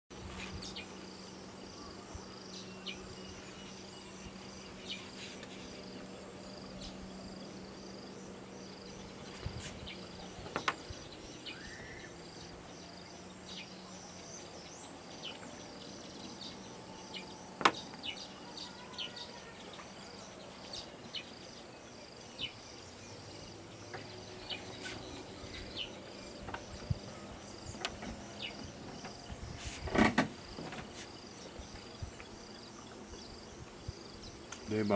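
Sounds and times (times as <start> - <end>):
bird chirps: 8.2 - 29.5.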